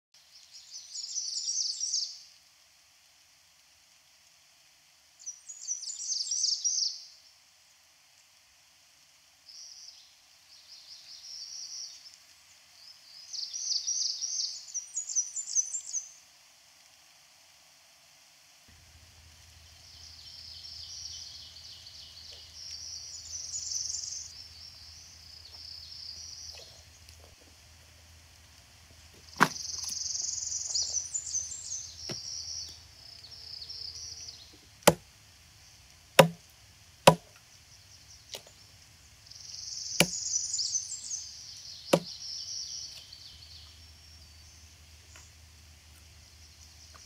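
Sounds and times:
birds chirping: 0.4 - 2.2, 5.2 - 7.1, 9.5 - 16.2, 18.7 - 47.0
machete chopping wood: 29.4 - 30.0, 34.8 - 35.0, 36.2 - 36.4, 37.1 - 37.3.

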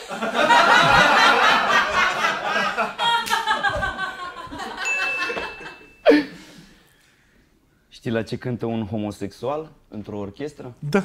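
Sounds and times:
men laughing loudly: 0.0 - 6.2.

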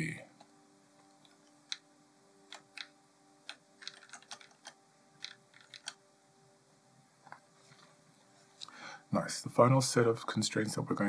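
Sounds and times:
faint steady hum: 0.0 - 11.0
keyboard and mouse clicks: 0.4 - 1.8, 2.5 - 6.0.

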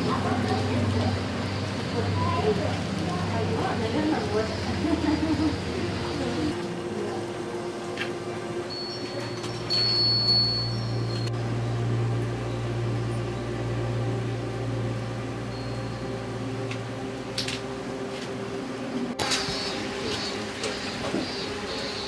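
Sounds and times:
steady low hum: 0.0 - 22.0
wind chimes ringing: 8.7 - 11.3, 15.5 - 16.3.

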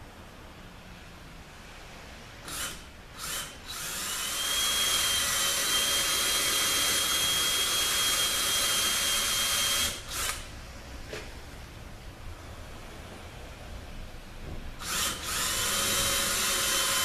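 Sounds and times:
power drill whining: 2.4 - 10.5, 14.8 - 17.0.

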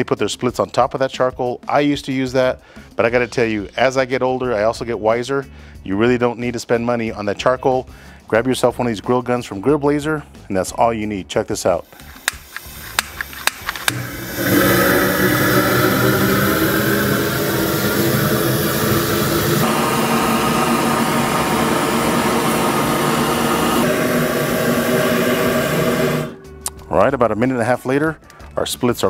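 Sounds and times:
torch igniter clicks: 11.9 - 14.2
torch flame jet rushing: 13.8 - 26.4.

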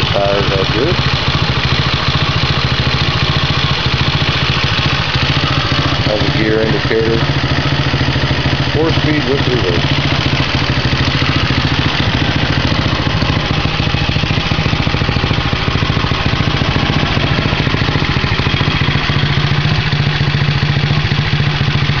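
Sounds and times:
atv engine idling: 0.0 - 22.0.

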